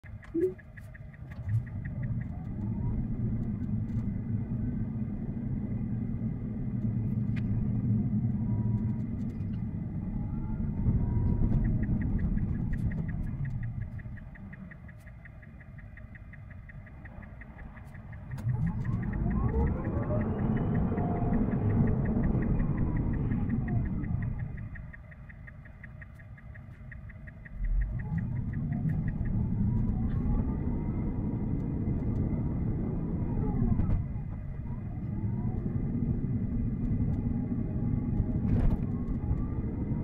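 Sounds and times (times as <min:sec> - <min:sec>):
rapid even ticking: 0:00.0 - 0:03.9, 0:11.4 - 0:30.1
road and tyre rumble in cabin: 0:00.0 - 0:40.0.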